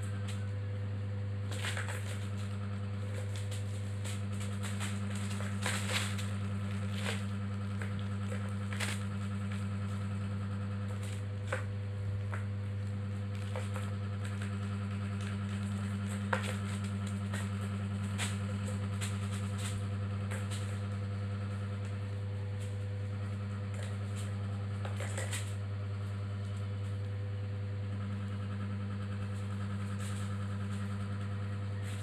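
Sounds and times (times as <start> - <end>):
steady low hum: 0.0 - 32.0
rustling on plastic sheet: 1.4 - 20.9.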